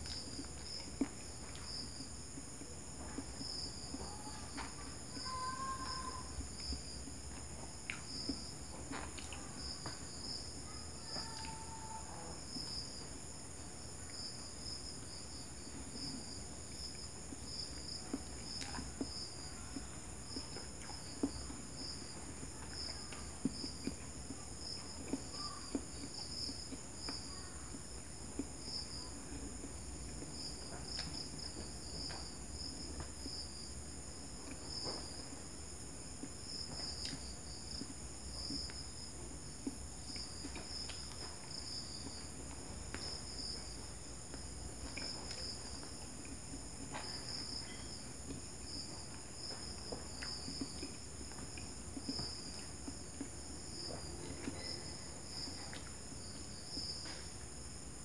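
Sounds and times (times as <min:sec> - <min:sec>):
clicks of chewing food: 0:00.0 - 0:58.0
crickets chirping: 0:00.0 - 0:58.0
high insect drone: 0:03.4 - 0:07.0.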